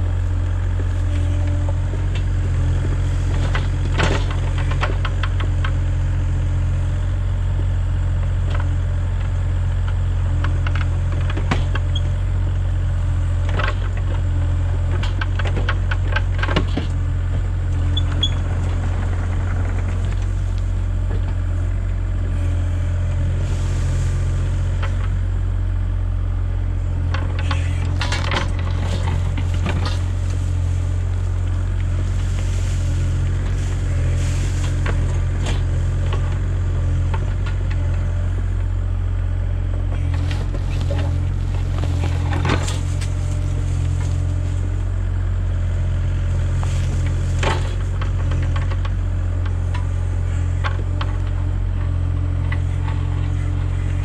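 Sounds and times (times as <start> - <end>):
excavator diesel engine running: 0.0 - 54.0
bucket scraping soil and stones: 22.3 - 25.1, 27.4 - 37.5, 40.0 - 44.9, 46.2 - 48.8.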